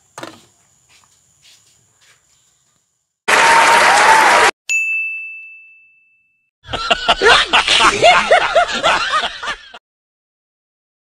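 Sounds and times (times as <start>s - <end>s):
audience applauding: 3.3s - 4.5s
bell ding: 4.7s - 6.5s.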